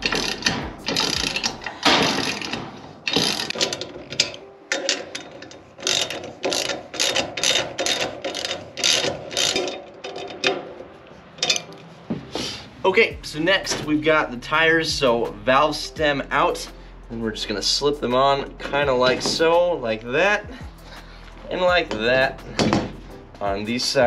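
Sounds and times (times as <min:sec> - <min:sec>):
socket ratchet clicking: 0:00.0 - 0:10.5.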